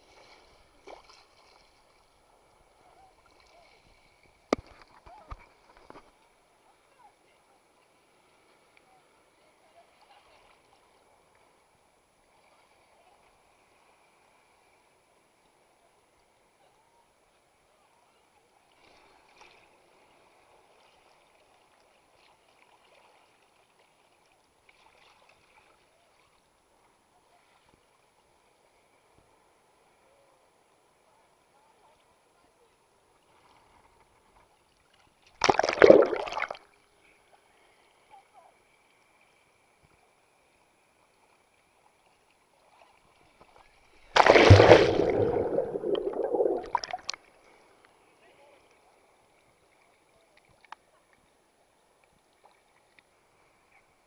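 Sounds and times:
water splashes: 0.0 - 2.2, 35.2 - 36.7, 42.7 - 47.3
faint sea water sloshing: 0.0 - 11.8, 33.0 - 36.8, 40.4 - 48.1.

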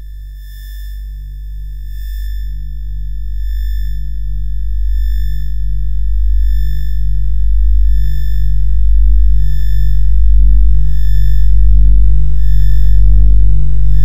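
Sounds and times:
deep bass drone: 0.0 - 14.0
low throbbing pulse: 0.0 - 14.0
high sine-like tones: 7.8 - 14.0.

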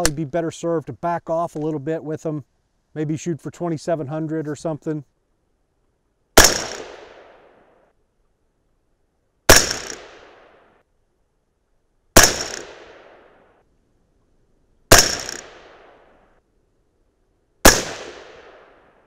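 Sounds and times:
gunshot echo: 6.4 - 7.6, 9.5 - 10.7, 12.2 - 13.4, 14.9 - 16.1, 17.6 - 19.0
suppressed rifle shots: 6.4 - 7.7, 9.5 - 10.8, 12.2 - 13.5, 14.9 - 16.2, 17.6 - 19.0.

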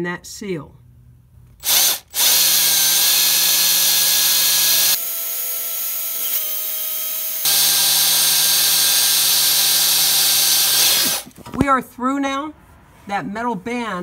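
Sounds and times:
electric drill drilling into metal: 1.6 - 11.3.

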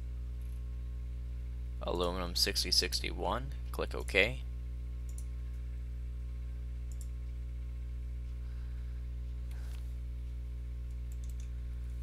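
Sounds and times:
steady low hum: 0.0 - 12.0
computer mouse clicks: 5.1 - 5.3, 6.9 - 7.1, 10.9 - 11.5.

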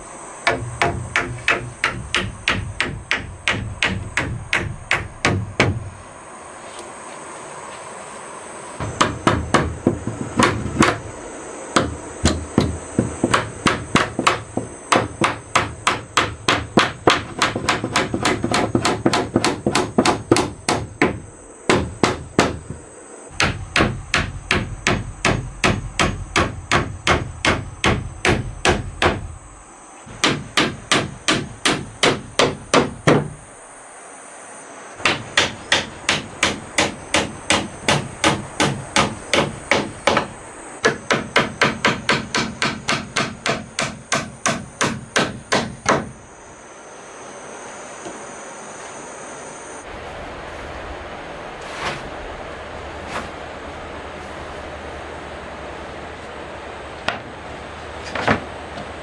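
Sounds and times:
hammer driving nails into wood: 0.5 - 5.9, 11.8 - 22.6, 30.1 - 33.4, 35.0 - 46.1.

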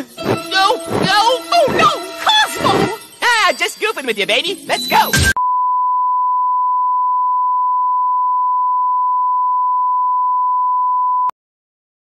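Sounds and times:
steady test tone beep: 4.9 - 11.3.

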